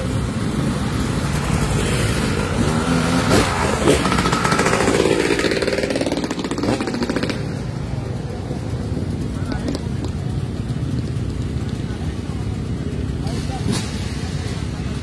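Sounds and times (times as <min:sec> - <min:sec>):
dirt bike engine revving: 0:00.0 - 0:10.2.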